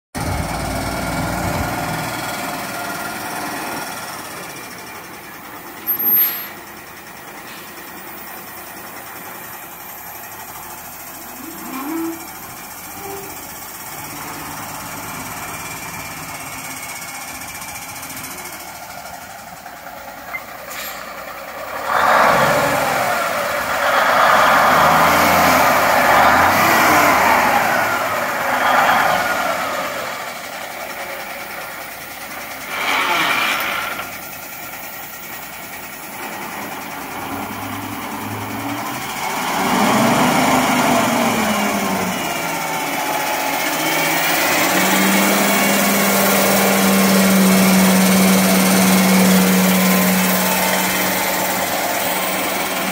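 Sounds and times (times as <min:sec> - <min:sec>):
diesel truck engine idling: 0:00.2 - 0:52.9.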